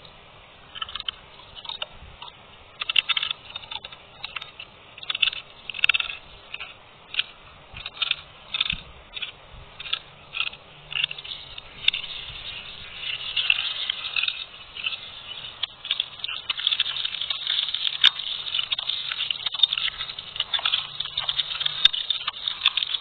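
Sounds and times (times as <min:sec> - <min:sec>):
crisp crunches of chewing: 0:00.7 - 0:23.0.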